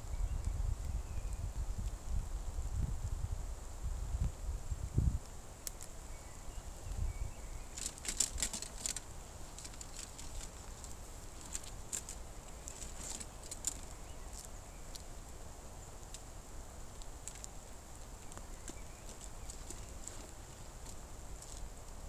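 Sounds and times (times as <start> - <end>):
leather straps and buckles clicking: 7.8 - 14.5.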